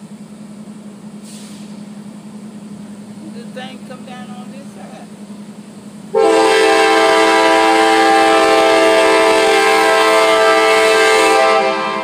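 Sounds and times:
locomotive air horn blast: 6.1 - 12.0.

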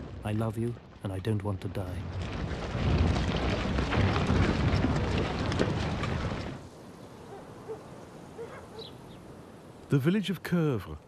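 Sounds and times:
low rumble with crackles: 0.0 - 8.7
low hooting bird calls: 6.8 - 9.4.

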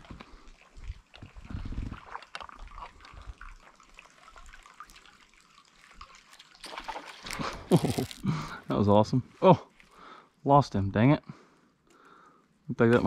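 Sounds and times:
water dripping off paddle: 0.0 - 8.2
water splash: 0.8 - 8.3.

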